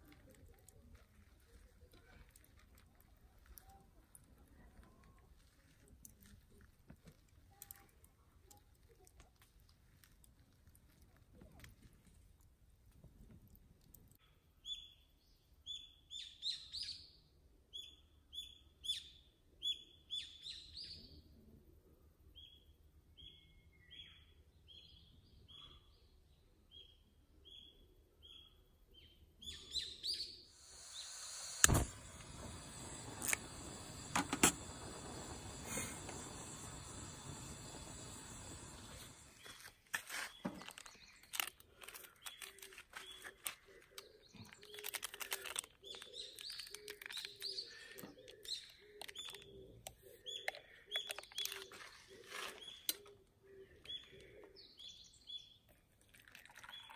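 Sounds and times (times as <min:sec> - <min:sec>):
small birds chirping: 0:22.4 - 0:56.9
camp stove burner hissing: 0:30.6 - 0:39.5.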